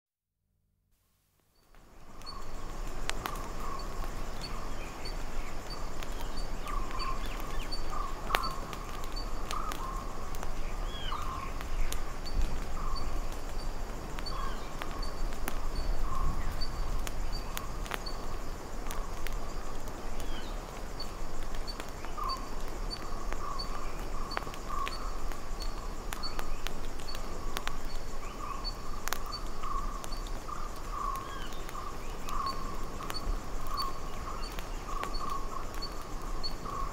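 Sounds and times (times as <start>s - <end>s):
birds calling: 28.2s - 36.9s.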